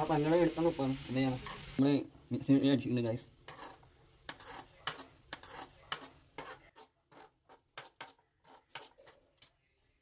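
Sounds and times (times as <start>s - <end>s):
metal spoon scraping a pan: 1.3s - 1.8s, 3.3s - 10.0s.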